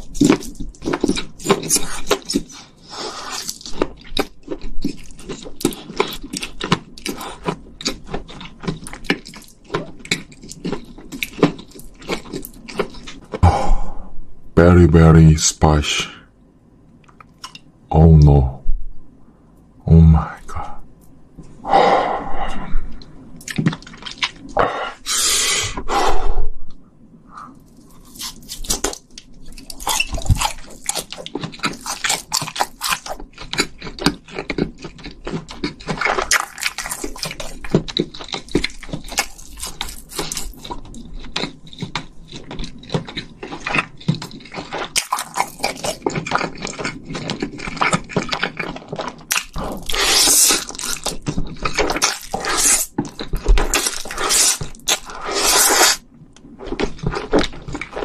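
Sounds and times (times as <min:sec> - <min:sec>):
wet chewing and smacking: 0:00.0 - 0:13.4, 0:22.9 - 0:24.6, 0:27.5 - 0:58.0
noodle slurping: 0:54.1 - 0:56.0.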